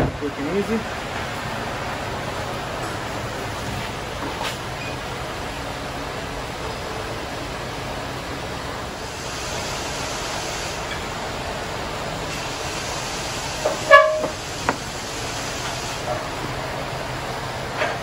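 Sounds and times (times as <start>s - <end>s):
shop background hiss: 8.8s - 16.8s
horn-like toot: 13.8s - 14.4s.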